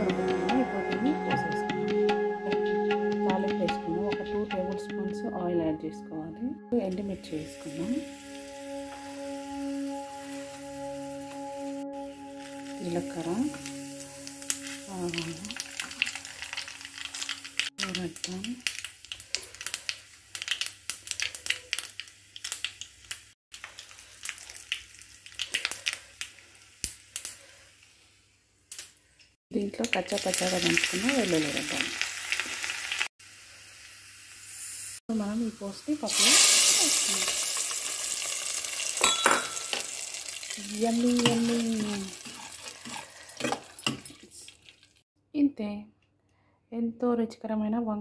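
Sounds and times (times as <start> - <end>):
hot oil crackling in a pan: 12.4 - 45.0
metal ladle clinking on pot: 39.0 - 39.8.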